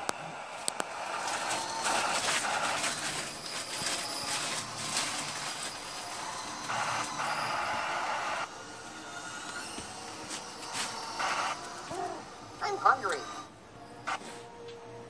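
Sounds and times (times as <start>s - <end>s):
crackles and clicks: 0.0s - 8.5s
harsh static noise: 0.0s - 15.0s.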